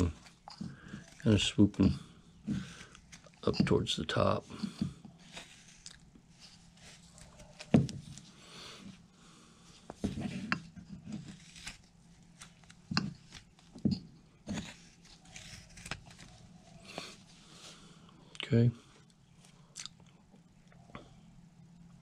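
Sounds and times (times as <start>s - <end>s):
knife scraping wood: 0.0s - 7.7s, 10.0s - 13.8s, 14.4s - 17.3s.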